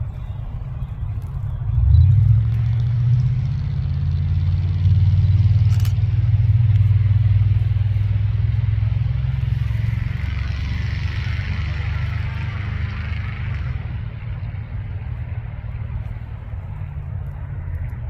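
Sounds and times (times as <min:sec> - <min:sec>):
low engine rumble: 0:00.0 - 0:18.0
sharp click: 0:05.6 - 0:06.0.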